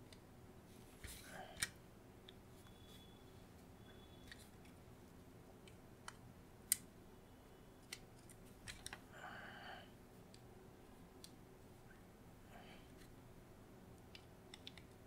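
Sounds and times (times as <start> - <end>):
small plastic parts clicking: 7.8 - 9.0, 14.1 - 15.0.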